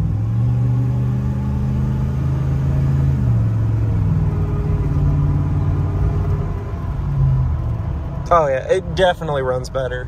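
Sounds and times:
truck engine accelerating: 0.0 - 10.0.

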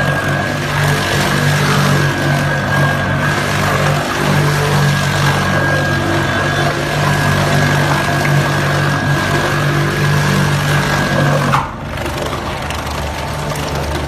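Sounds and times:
bowl cutter humming and whining: 0.0 - 14.0.

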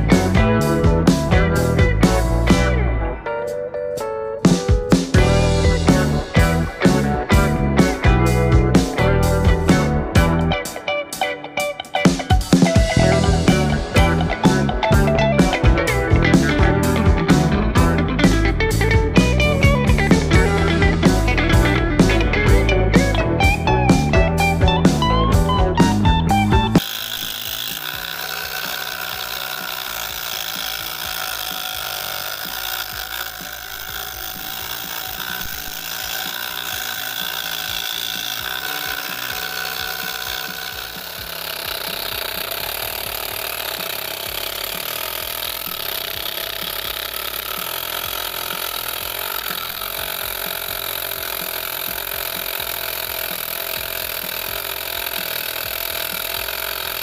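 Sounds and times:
electric motor running: 0.0 - 3.0, 5.0 - 10.9, 12.0 - 57.0
saw blade cutting plywood: 4.5 - 10.7, 26.6 - 57.0.

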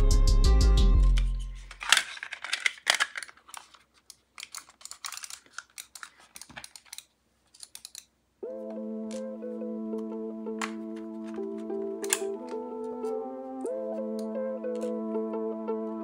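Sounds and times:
music: 0.0 - 1.6, 8.4 - 16.0
plastic mouse clicks and snaps: 14.2 - 15.0.

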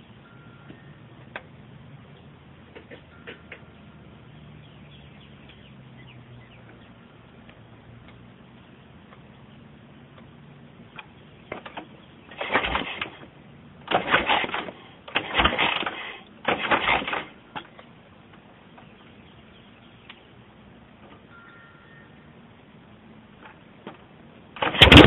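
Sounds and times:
motorcycle kick-start clattering: 10.9 - 17.9, 24.6 - 25.0.

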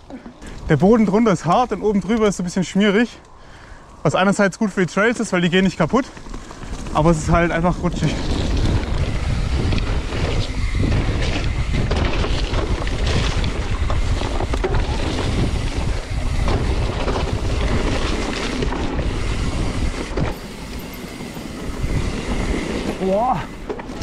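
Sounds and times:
bike tyre noise: 0.0 - 24.0
wind buffeting microphone: 4.9 - 24.0
bike knocking over bumps: 9.9 - 19.1.

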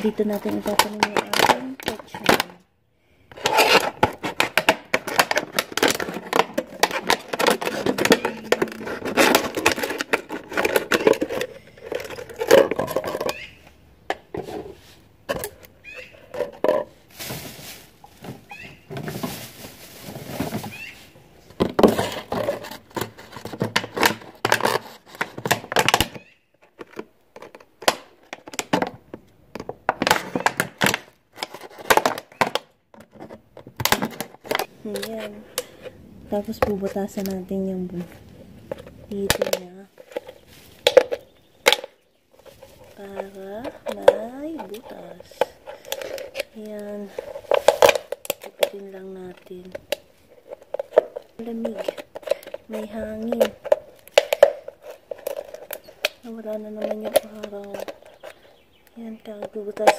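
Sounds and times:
plastic bag rustling: 0.0 - 2.6, 3.3 - 13.8, 14.4 - 25.8, 34.1 - 59.9
plastic bottles knocked: 0.0 - 2.6, 3.3 - 35.8, 38.8 - 42.0, 42.7 - 58.5
scissors cutting plastic bottles: 0.0 - 2.6, 3.3 - 13.6, 42.5 - 59.9.

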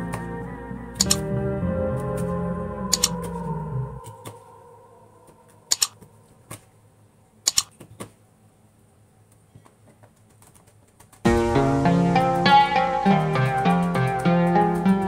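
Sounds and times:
plucked-string music: 0.0 - 3.9, 11.3 - 15.0.

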